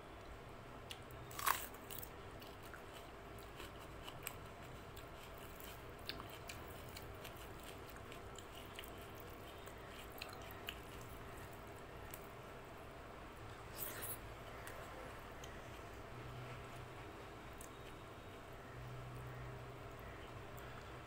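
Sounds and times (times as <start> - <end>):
chewing with wet smacks: 0.9 - 12.2.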